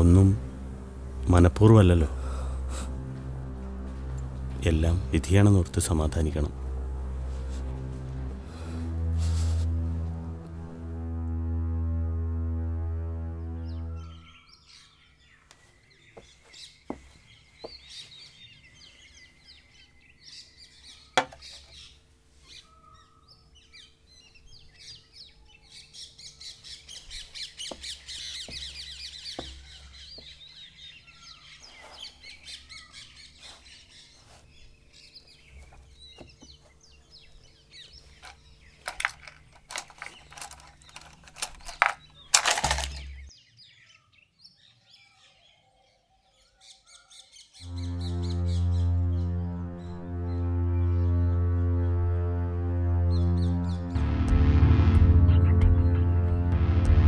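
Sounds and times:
small birds chirping: 13.7s - 50.4s
sharp knocks and clicks: 21.2s - 21.7s
loud rustling: 38.1s - 43.3s.

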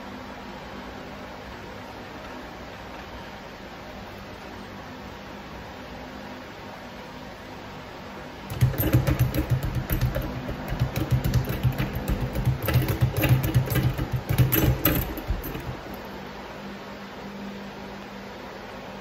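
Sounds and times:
speed bag rattling: 8.5s - 16.1s.

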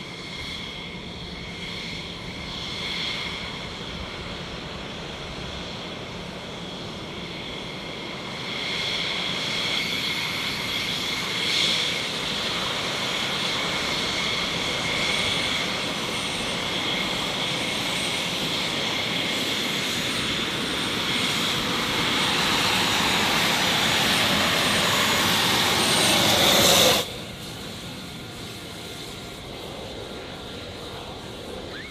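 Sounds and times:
jet engines whining: 0.0s - 31.9s
jet exhaust rush: 0.0s - 31.9s
high steady whistle: 31.2s - 31.9s.

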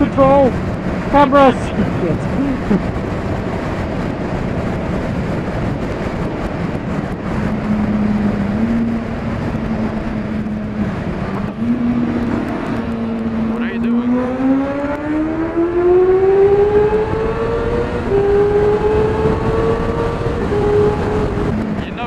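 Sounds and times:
motorcycle engine: 0.0s - 22.0s
wind noise: 0.0s - 22.0s.

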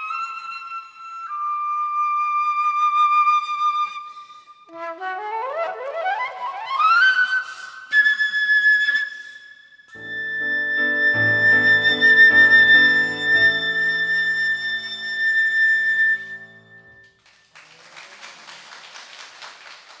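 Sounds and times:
flute holding a note: 9.9s - 17.1s
piano chords: 10.0s - 17.1s
applause: 17.0s - 20.0s.

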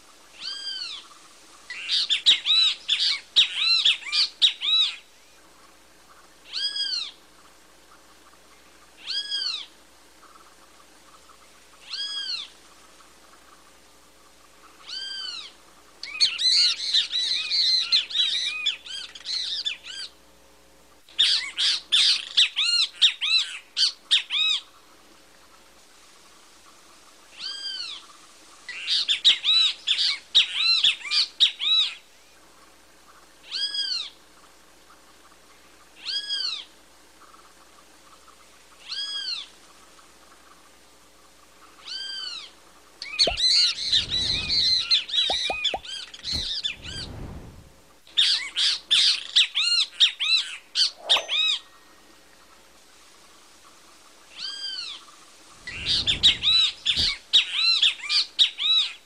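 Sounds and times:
bird harsh chattering calls: 43.0s - 47.0s, 50.8s - 51.6s, 55.6s - 57.8s
bird single arched calls: 43.0s - 47.0s, 50.8s - 51.7s.

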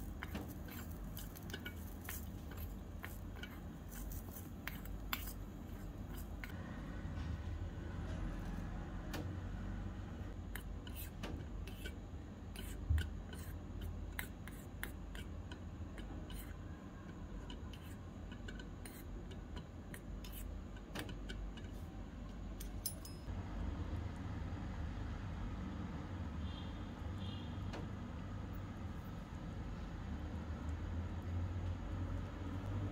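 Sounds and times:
low steady hum: 0.0s - 32.9s
metal spoon scraping a pot: 0.1s - 6.6s.

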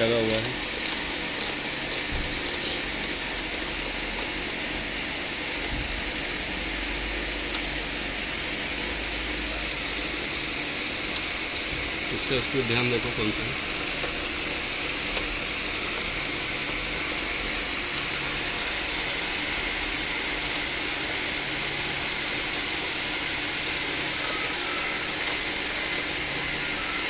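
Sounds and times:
mechanical hum with hiss: 0.0s - 27.0s
screwdriver clicks: 0.3s - 4.3s, 23.6s - 25.9s.

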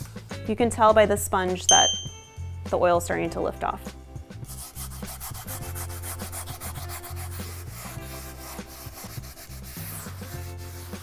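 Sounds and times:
sponge scrubbing a cast iron skillet: 4.7s - 11.0s.

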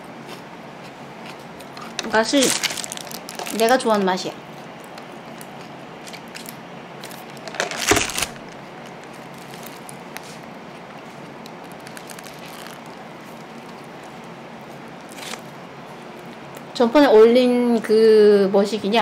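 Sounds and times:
hamburger being chewed: 0.0s - 3.7s, 4.5s - 16.7s
plastic and foil wrapping crinkling: 1.8s - 4.3s, 5.3s - 14.3s, 15.0s - 15.5s.

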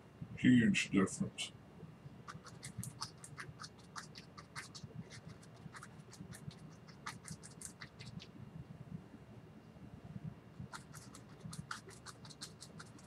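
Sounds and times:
paintbrush scratching on canvas: 2.2s - 8.3s, 10.6s - 13.0s.

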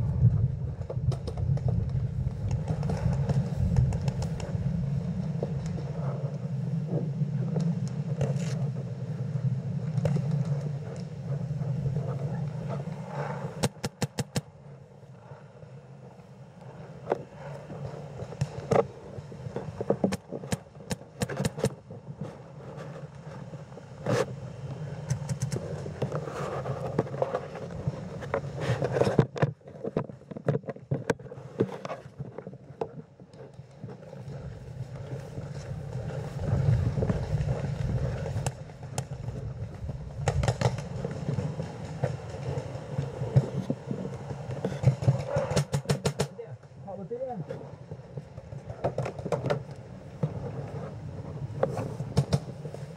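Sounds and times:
low steady rumble: 0.0s - 13.6s
paintball markers firing: 13.6s - 14.5s.

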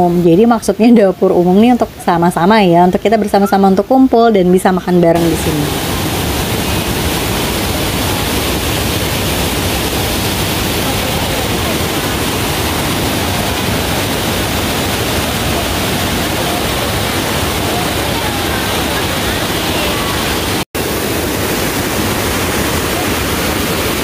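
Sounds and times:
river rushing over rocks: 5.2s - 24.0s.

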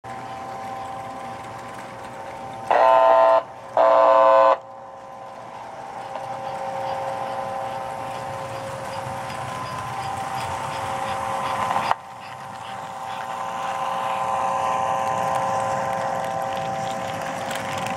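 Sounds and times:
toy train running whine: 0.1s - 17.9s
toy train whistle: 2.7s - 4.7s.

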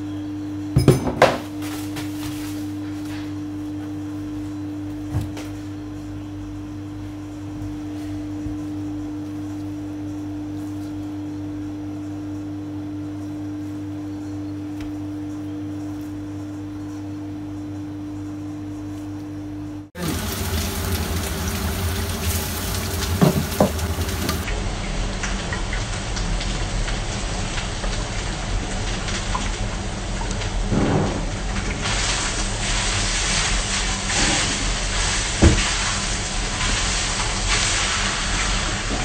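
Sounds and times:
steady hum: 13.5s - 25.6s
oil sizzling loudly: 20.0s - 39.0s.

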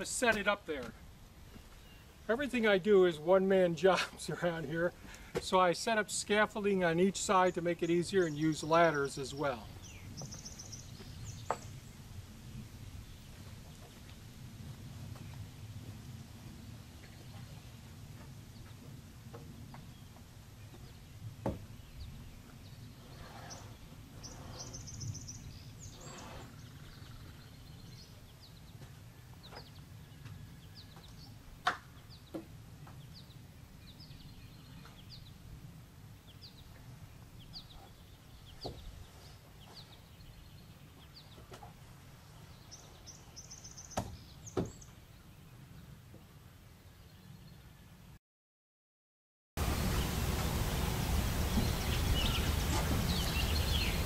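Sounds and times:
birds chirping: 0.0s - 16.1s, 16.7s - 48.0s, 49.6s - 54.0s
low outdoor rumble: 0.0s - 39.1s.

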